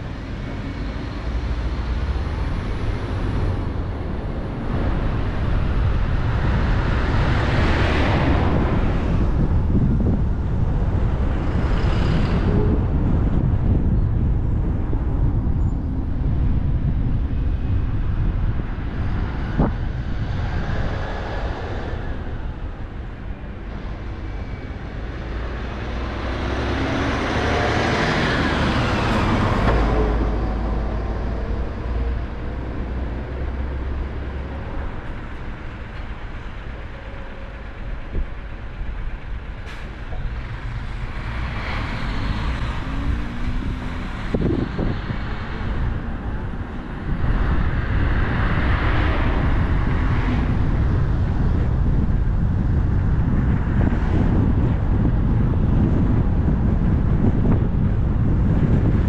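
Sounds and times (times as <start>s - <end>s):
car driving on road: 0.0s - 59.0s
vehicle passing: 19.2s - 35.0s, 40.3s - 55.1s.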